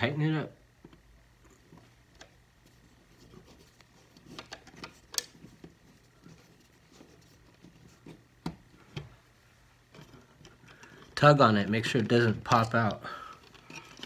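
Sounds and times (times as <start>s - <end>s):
screwdriver clicks and scrapes: 3.3s - 8.2s, 12.4s - 14.0s.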